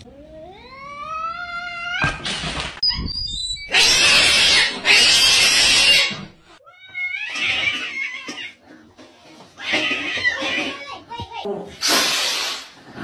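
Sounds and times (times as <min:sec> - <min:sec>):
cat hissing: 0:11.7 - 0:12.8.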